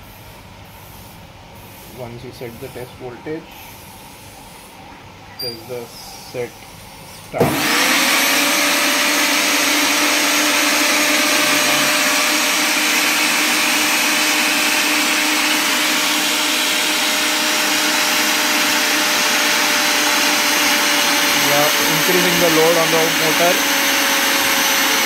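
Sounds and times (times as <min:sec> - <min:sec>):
mixer grinder motor whining: 0:07.4 - 0:25.0.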